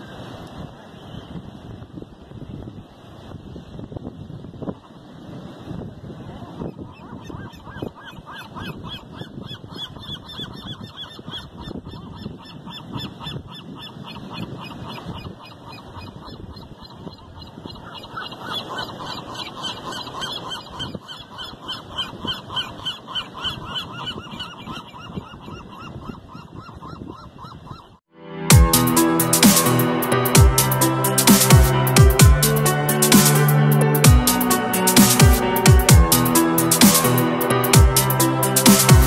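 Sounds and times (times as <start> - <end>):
gulls calling: 6.7 - 27.9.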